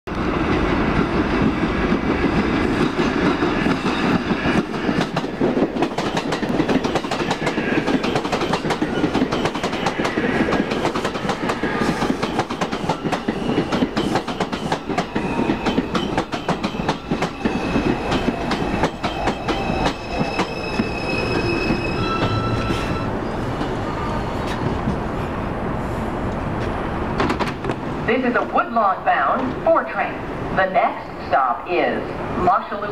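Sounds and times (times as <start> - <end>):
high electric whine of braking train: 0.2 - 26.2
train wheels clacking over rail joints: 1.4 - 20.9.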